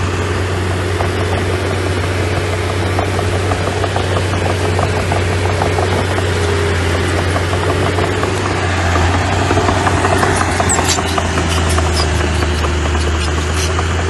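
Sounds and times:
diesel engine running: 0:00.0 - 0:14.0
rattling and clanking: 0:00.0 - 0:14.0
high squeaks: 0:09.8 - 0:14.0.

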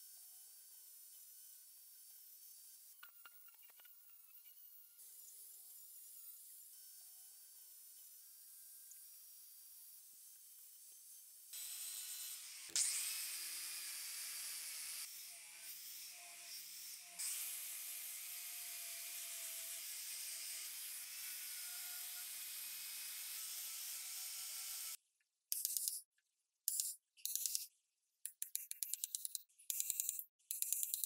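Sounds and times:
angle grinder sanding wood: 0:11.6 - 0:25.0.

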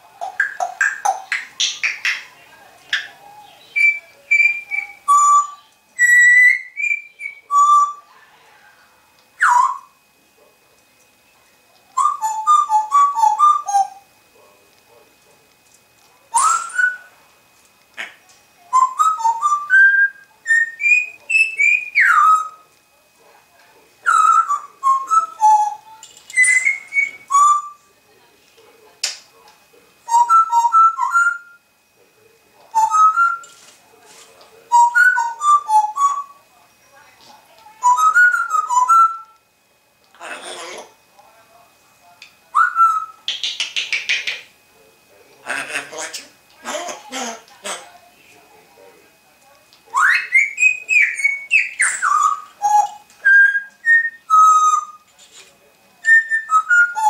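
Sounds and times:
parrot whistling: 0:02.9 - 0:08.1, 0:09.4 - 0:10.0, 0:12.0 - 0:14.0, 0:16.3 - 0:17.2, 0:18.0 - 0:22.6, 0:24.0 - 0:27.9, 0:30.1 - 0:31.6, 0:32.7 - 0:33.6, 0:34.7 - 0:36.4, 0:37.8 - 0:39.4, 0:42.5 - 0:44.5, 0:49.9 - 0:55.1, 0:56.0 - 0:57.0.

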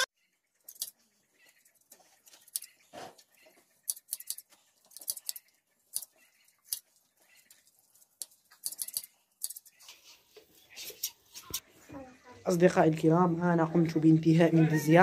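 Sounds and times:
shears snipping wool: 0:02.2 - 0:06.8.

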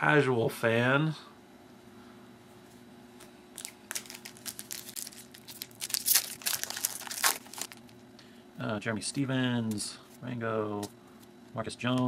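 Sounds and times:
foil wrapper tearing and crinkling: 0:03.6 - 0:08.0.

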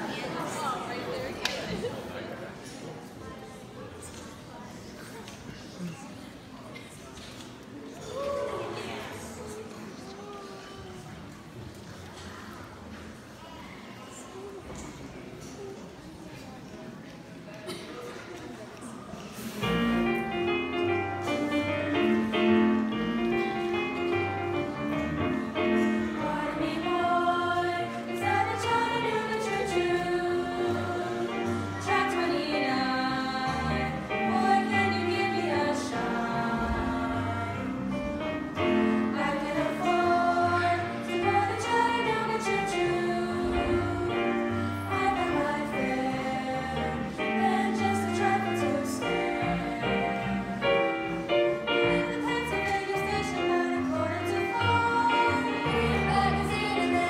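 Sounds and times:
piano accompaniment: 0:19.6 - 0:57.0
women singing together: 0:24.7 - 0:57.0.

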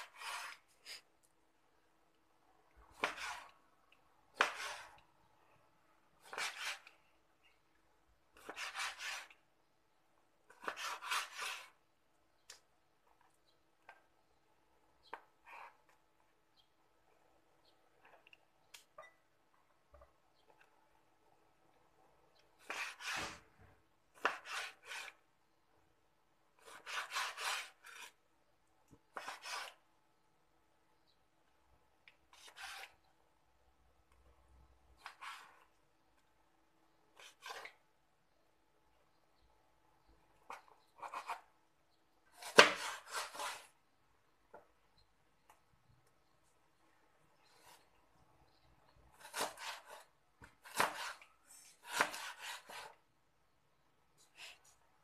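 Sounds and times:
knife scraping cutting board: 0:00.0 - 0:01.1, 0:02.9 - 0:03.6, 0:04.3 - 0:05.0, 0:06.2 - 0:07.0, 0:08.4 - 0:09.4, 0:10.5 - 0:11.8, 0:22.6 - 0:23.6, 0:24.2 - 0:25.2, 0:26.6 - 0:28.2, 0:29.1 - 0:29.8, 0:32.3 - 0:33.1, 0:35.0 - 0:35.7, 0:37.2 - 0:37.8, 0:40.5 - 0:41.5, 0:42.3 - 0:43.7, 0:49.2 - 0:53.0
knife slicing raw meat: 0:02.9 - 0:03.6, 0:04.3 - 0:05.0, 0:06.2 - 0:06.9, 0:08.4 - 0:09.4, 0:10.5 - 0:11.8, 0:22.6 - 0:23.4, 0:24.2 - 0:25.2, 0:26.6 - 0:28.2, 0:29.1 - 0:29.8, 0:42.3 - 0:43.7, 0:49.2 - 0:53.0
cleaver slicing meat on board: 0:24.2 - 0:25.2, 0:26.6 - 0:28.2, 0:42.4 - 0:43.7, 0:49.2 - 0:50.0, 0:50.6 - 0:51.2, 0:51.8 - 0:53.0.

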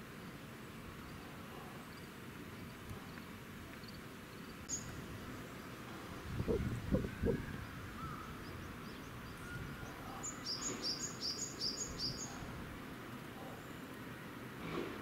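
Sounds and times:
outdoor background noise: 0:00.0 - 0:15.0
bird chirping: 0:03.8 - 0:12.4.

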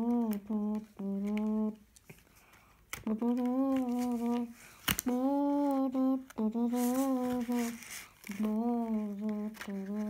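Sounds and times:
child humming: 0:05.1 - 0:10.0.

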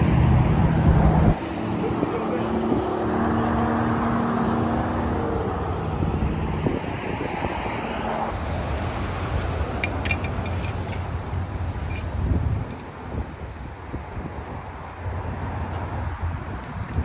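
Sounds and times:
highway traffic: 0:00.0 - 0:17.0
vehicle engine hum: 0:00.0 - 0:17.0
wind rumble on microphone: 0:00.0 - 0:17.0.

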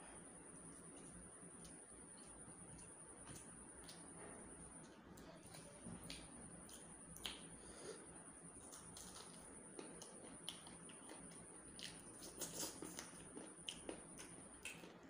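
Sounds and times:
chewing clicks: 0:04.8 - 0:07.5, 0:08.6 - 0:15.0.

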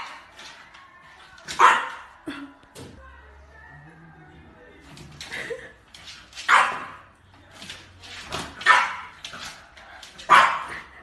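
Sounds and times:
puppy barking: 0:01.6 - 0:02.1, 0:06.5 - 0:07.1, 0:08.6 - 0:09.2, 0:10.2 - 0:10.9.

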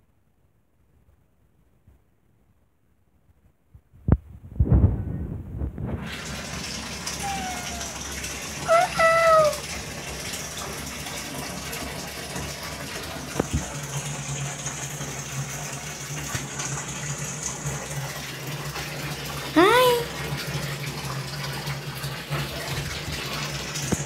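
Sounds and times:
cat meowing: 0:07.2 - 0:08.0, 0:08.7 - 0:09.6.

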